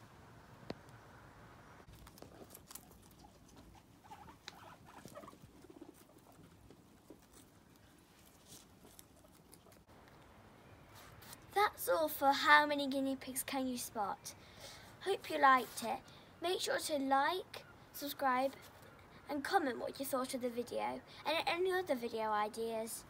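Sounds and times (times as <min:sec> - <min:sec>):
guinea pigs nibbling clicks: 0:01.9 - 0:07.9
rustling in hay: 0:01.9 - 0:09.5.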